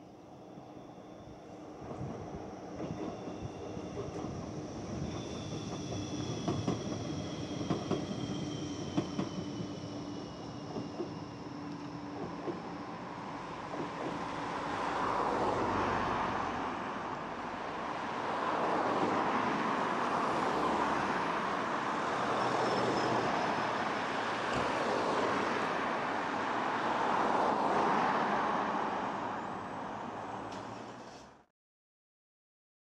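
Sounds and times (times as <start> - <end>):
cars passing by: 13.1 - 31.4.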